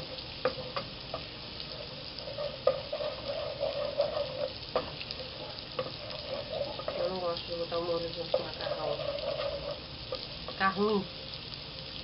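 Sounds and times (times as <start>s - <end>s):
garlic sizzling in hot oil: 0.0s - 12.0s
wooden spoon knocking on pot: 2.3s - 9.8s.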